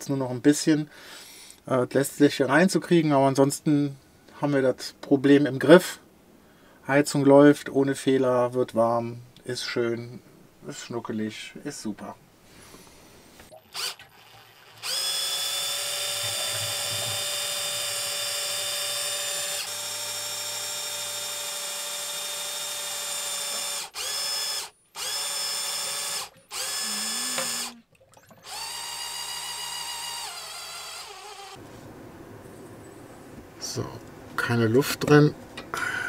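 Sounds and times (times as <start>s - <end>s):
electric pump whining: 13.7s - 27.8s, 28.4s - 31.6s.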